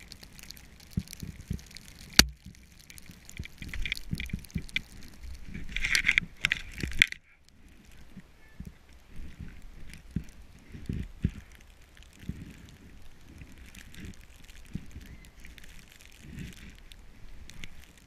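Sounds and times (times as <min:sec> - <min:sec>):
sharp crack: 0:00.0 - 0:08.0.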